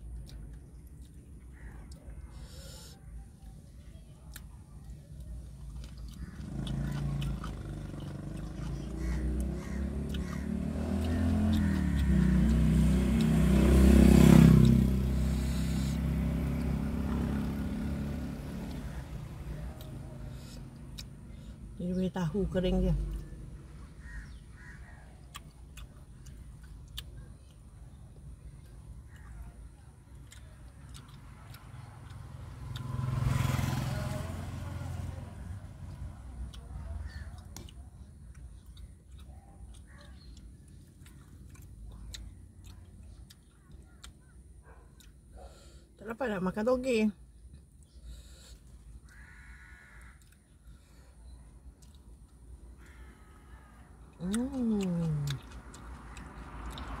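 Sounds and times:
motor vehicle passing by: 3.7 - 57.0
person chewing: 4.3 - 13.5, 19.6 - 21.5, 25.1 - 33.0, 36.4 - 45.8, 49.9 - 53.0, 53.9 - 57.0.

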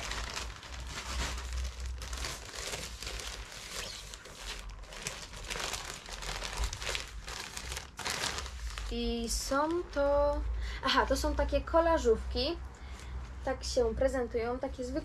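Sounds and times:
packaging bag crinkling: 0.0 - 9.8.

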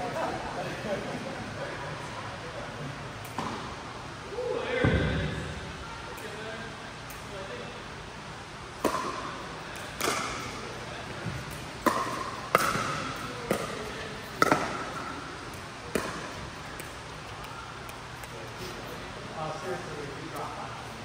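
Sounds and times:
paddles striking pickleball: 8.8 - 10.6, 11.3 - 18.4.

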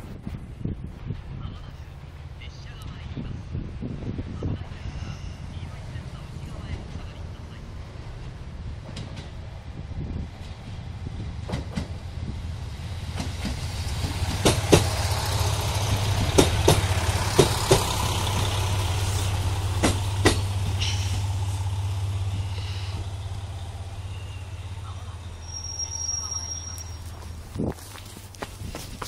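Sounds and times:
railcar engine drone: 0.0 - 29.0
train wheel clacks: 8.2 - 9.4, 11.4 - 12.0, 12.9 - 21.5.

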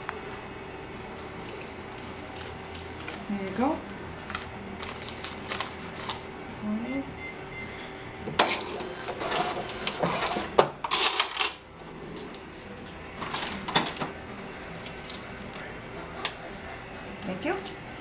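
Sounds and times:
receipt printer running: 0.9 - 18.0
cash drawer springing open: 8.4 - 11.6.

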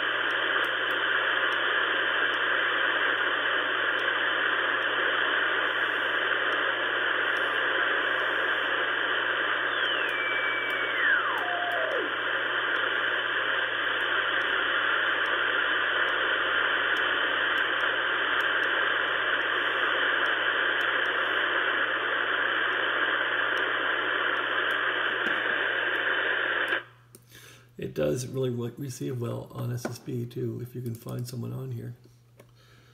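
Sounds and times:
radio band noise hiss: 0.0 - 26.9, 27.5 - 32.0
radio carrier whistle sliding down: 9.5 - 12.2.

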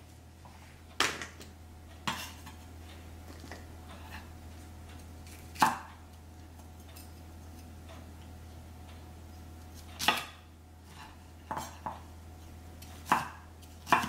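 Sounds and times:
knife chopping on wooden board: 5.3 - 5.9, 10.0 - 10.4, 12.8 - 14.0.

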